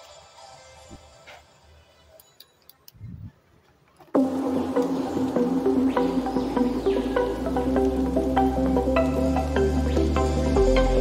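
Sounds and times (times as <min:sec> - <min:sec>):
held bass notes: 0:04.2 - 0:11.0
plucked electronic melody: 0:04.2 - 0:11.0.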